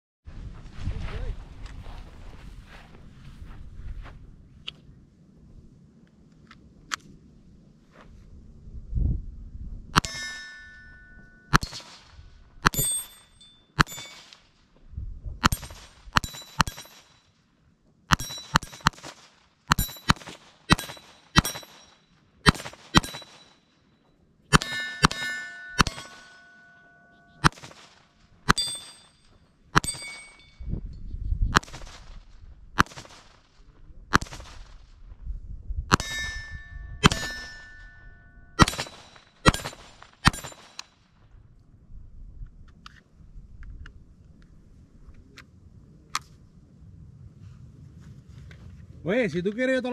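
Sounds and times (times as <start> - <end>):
steel target ringing ping: 10.0 - 12.0, 12.6 - 14.3, 19.7 - 23.8, 24.5 - 27.6, 28.5 - 30.7, 35.9 - 40.6
pistol shots: 11.5 - 13.2, 15.4 - 17.2, 18.1 - 23.6, 24.5 - 26.6, 27.4 - 29.1, 29.8 - 30.5, 31.6 - 33.5, 34.1 - 34.8, 38.6 - 41.0.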